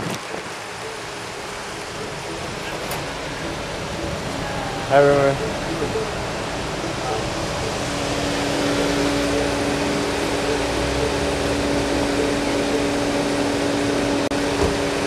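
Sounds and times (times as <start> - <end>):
steady mechanical hum: 0.0 - 15.0
street noise: 0.0 - 15.0.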